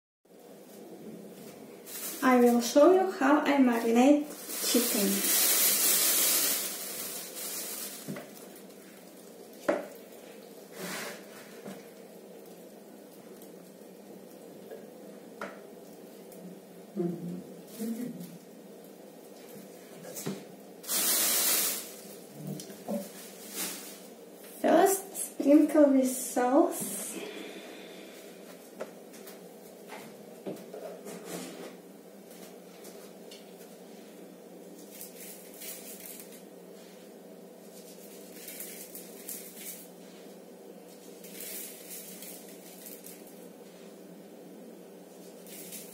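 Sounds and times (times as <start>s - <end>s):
steady low hum: 0.3s - 20.9s, 21.8s - 45.9s
plastic bag rustling: 0.5s - 14.6s, 19.3s - 24.6s, 34.7s - 44.1s, 45.1s - 45.9s.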